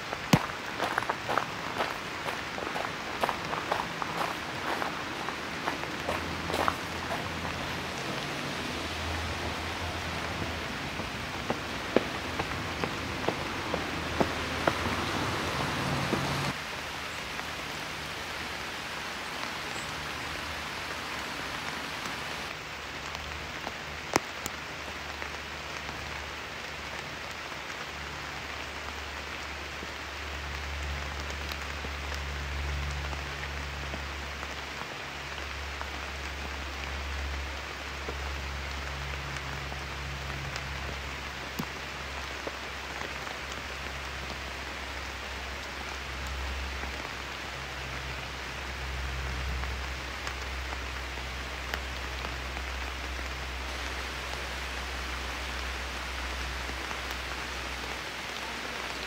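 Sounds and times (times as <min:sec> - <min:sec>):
steady rain on trees and paving: 0:00.0 - 0:59.0.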